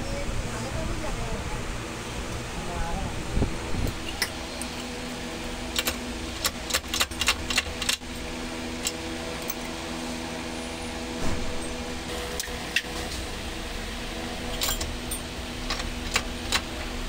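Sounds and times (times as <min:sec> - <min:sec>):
workshop machinery hum: 0:00.0 - 0:17.0
sharp metallic clicks and clinks: 0:14.5 - 0:16.6.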